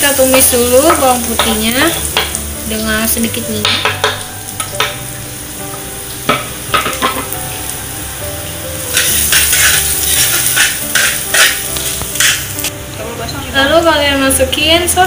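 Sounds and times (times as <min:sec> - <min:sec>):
garlic sizzling in oil: 0:00.0 - 0:15.0
utensil scraping pan: 0:08.9 - 0:12.6.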